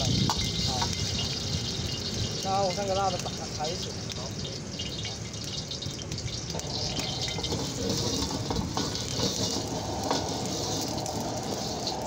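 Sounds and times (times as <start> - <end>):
gas burner rushing hiss: 0.0 - 5.0, 6.1 - 12.0.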